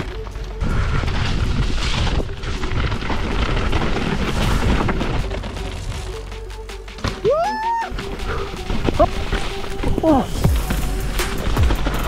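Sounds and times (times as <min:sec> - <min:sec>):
bike rattling over ground: 0:00.0 - 0:12.0.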